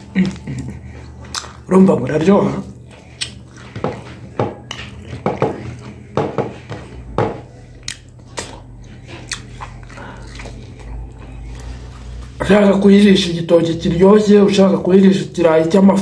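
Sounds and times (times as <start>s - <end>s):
man chewing and biting chicken: 0.0s - 6.2s, 6.9s - 12.4s.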